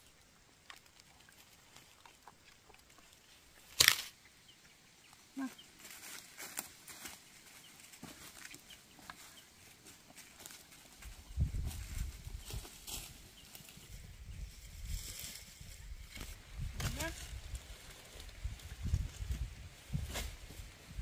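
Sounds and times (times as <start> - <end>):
footsteps crunching dry leaves: 5.7 - 20.9.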